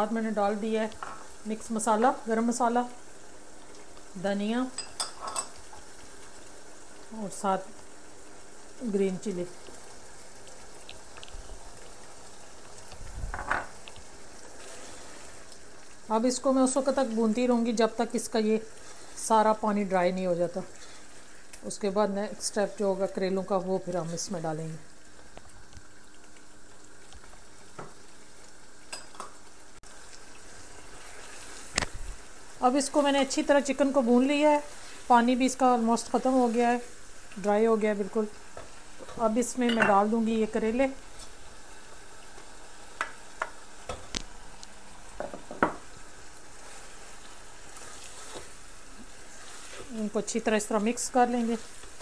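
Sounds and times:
curry sizzling in a pan: 0:00.0 - 0:52.0.

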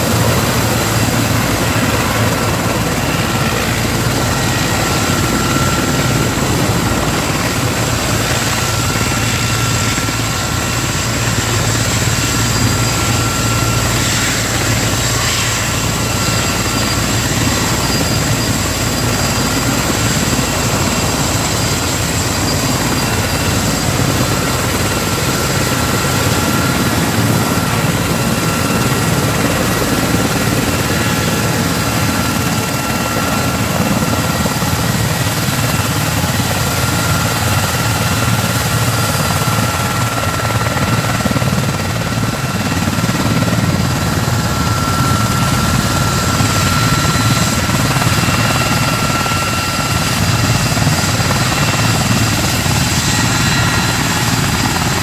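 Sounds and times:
helicopter rotor beat: 0:00.0 - 0:55.0
helicopter turbine whine: 0:00.0 - 0:55.0.

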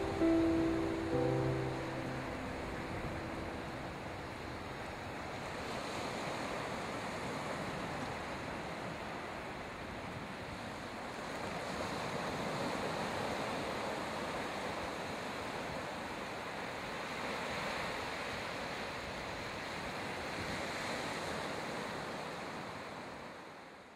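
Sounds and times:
ocean surf breaking on beach: 0:00.0 - 0:10.5.

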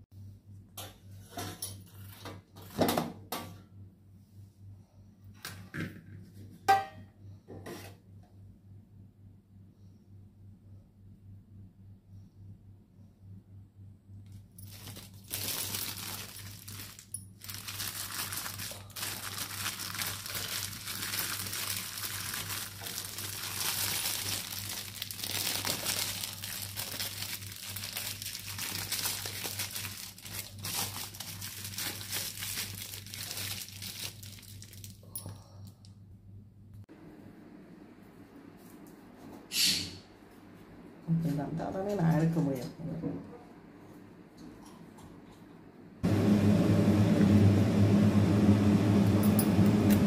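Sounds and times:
plastic cling film crinkling: 0:14.3 - 0:35.1.

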